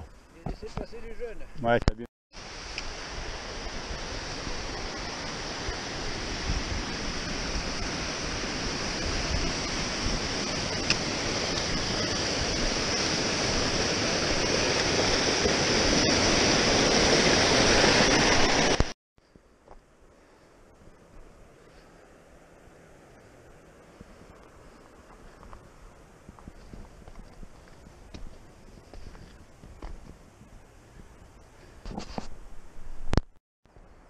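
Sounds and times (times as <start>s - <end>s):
stream rushing over rocks: 2.4s - 19.0s
faint hiss: 2.4s - 34.0s.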